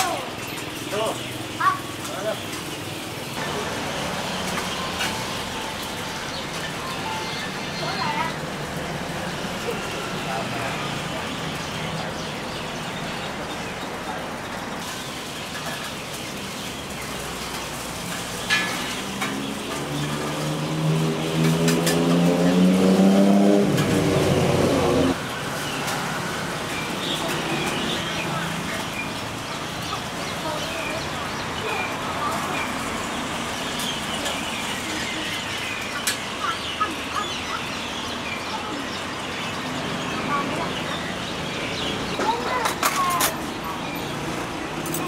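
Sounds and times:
food frying sizzle: 0.0s - 44.8s
vehicle engine hum: 16.8s - 35.6s.

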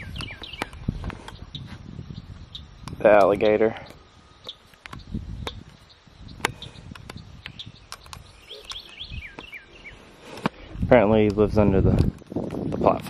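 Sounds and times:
short bird chirps: 5.9s - 10.1s.

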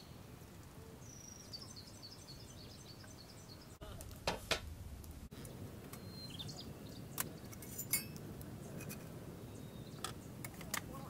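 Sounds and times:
metal camping gear clinks: 7.5s - 8.2s.

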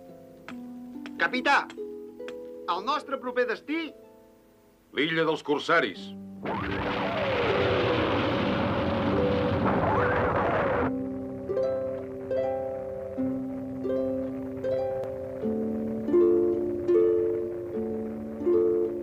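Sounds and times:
gentle plucked music: 0.0s - 6.4s, 10.9s - 19.0s
cartoon spaceship engine rushing: 6.4s - 10.9s.

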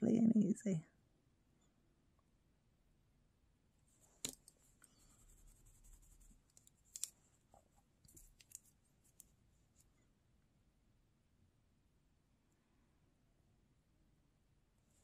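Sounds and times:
light scratching on a nail: 4.3s - 7.2s.

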